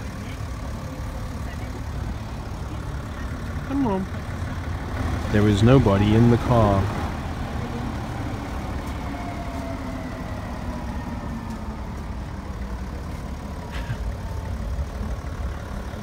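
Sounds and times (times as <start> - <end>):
car engine idling: 0.0 - 16.0.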